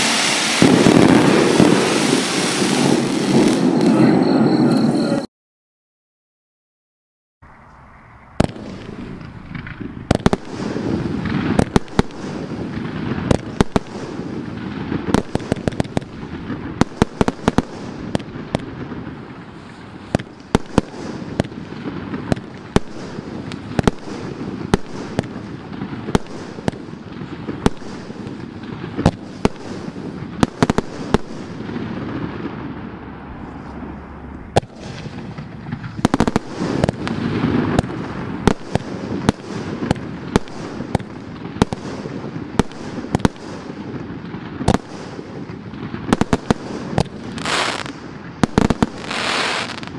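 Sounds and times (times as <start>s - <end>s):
firework cracks and bangs: 0.0s - 4.1s, 8.4s - 49.9s
continuous noisy rush: 3.6s - 5.3s, 7.4s - 10.5s, 32.6s - 37.1s.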